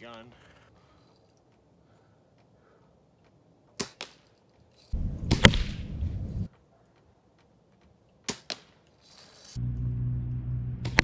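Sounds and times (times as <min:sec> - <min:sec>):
bb gun firing: 0:05.2 - 0:05.9.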